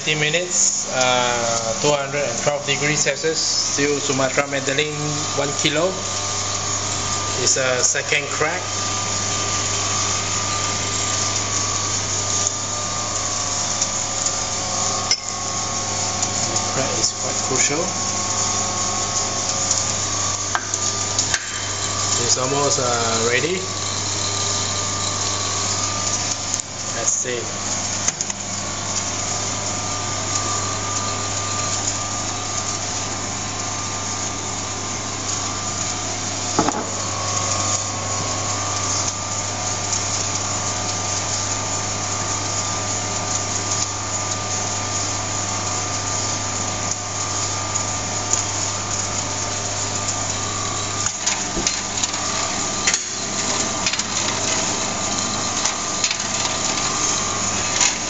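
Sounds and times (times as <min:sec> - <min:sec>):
coffee roaster motor humming: 0:00.0 - 0:58.0
coffee beans cracking: 0:49.7 - 0:58.0.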